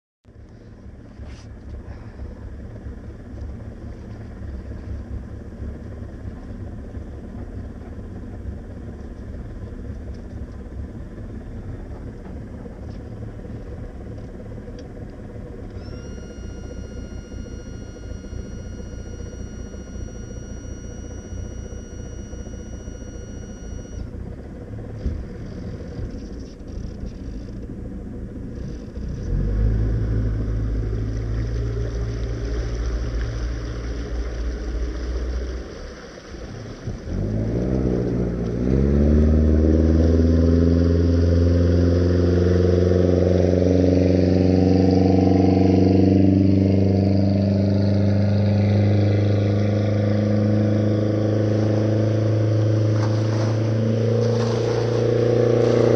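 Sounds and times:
low rumble: 0.3s - 41.4s
boat engine starting and running: 0.3s - 55.9s
high electronic warning tone: 15.6s - 24.6s, 48.5s - 55.9s.

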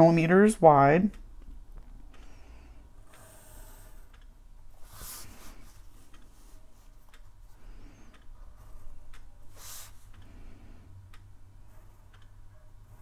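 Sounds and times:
pencil and ruler ticks: 3.1s - 4.3s.

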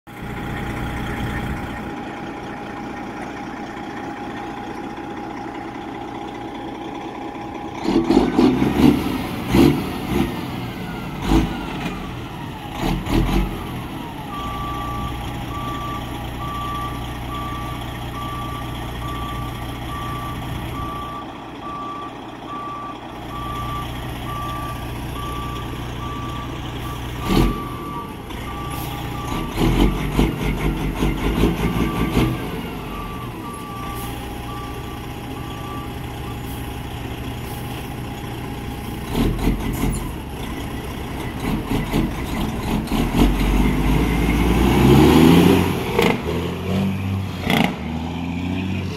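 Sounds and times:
diesel truck engine running: 0.1s - 48.9s
reversing alarm beeping: 10.7s - 36.8s.

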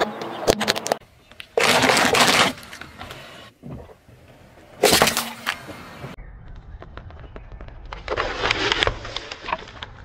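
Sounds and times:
tyre crushing candies: 0.5s - 2.8s
sharp crack: 4.8s - 5.7s.

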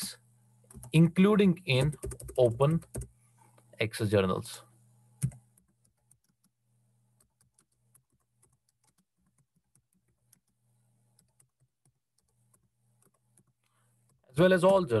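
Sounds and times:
low steady hum: 0.0s - 8.9s
keyboard typing: 0.6s - 1.1s, 1.7s - 3.1s, 5.2s - 14.9s.

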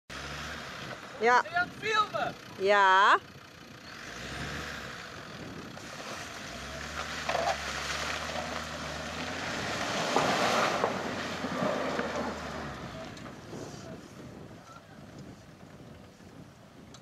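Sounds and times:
wind gusts on microphone: 9.6s - 17.0s.

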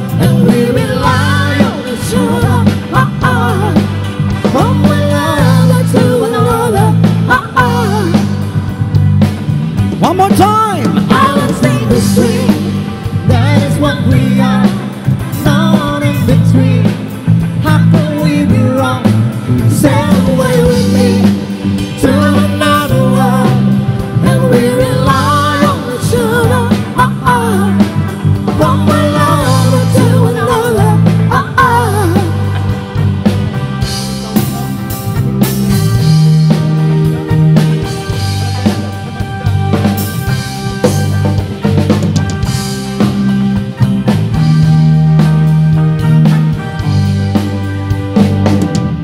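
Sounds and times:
person singing into microphone: 0.0s - 8.6s, 10.5s - 32.9s
live band playing pop song: 0.0s - 49.0s.

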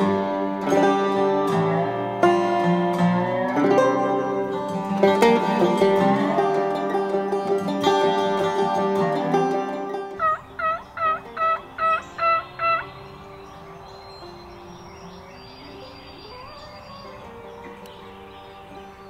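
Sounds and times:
plucked string music: 0.0s - 19.0s
turkey yelps: 10.2s - 12.8s.

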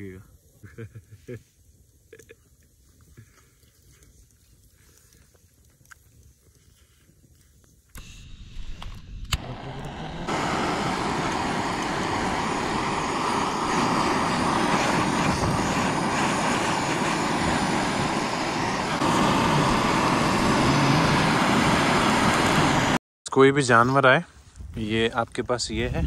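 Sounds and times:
blow torch flame hissing: 8.0s - 23.0s.

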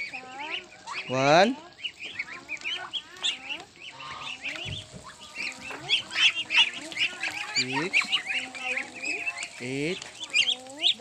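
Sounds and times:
ducks calling: 0.0s - 11.0s.

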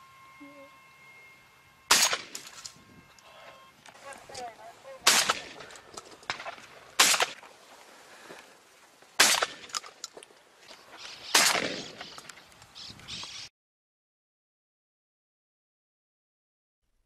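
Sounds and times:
shotgun shots echoing: 1.9s - 2.6s, 5.0s - 7.5s, 9.2s - 9.9s, 11.2s - 12.2s.

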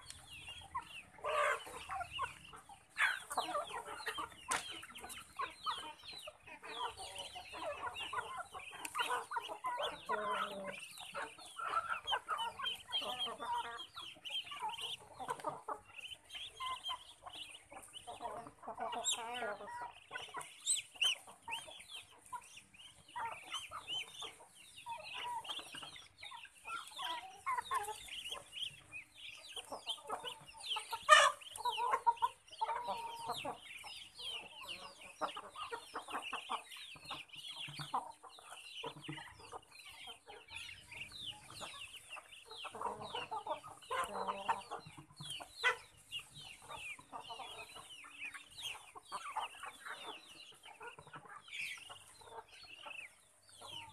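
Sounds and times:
chickens clucking: 0.0s - 53.9s
ducklings peeping: 0.0s - 53.9s.

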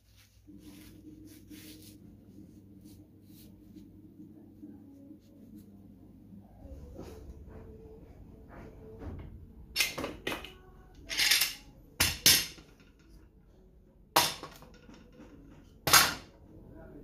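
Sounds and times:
metal clamps clattering: 9.8s - 13.1s.

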